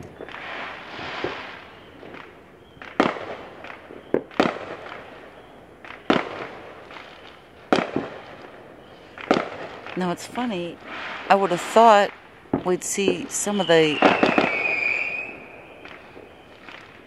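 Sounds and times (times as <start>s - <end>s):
crackling hiss: 0.0s - 17.0s
fireworks bangs: 0.0s - 17.0s
small fireworks pops: 0.0s - 17.0s.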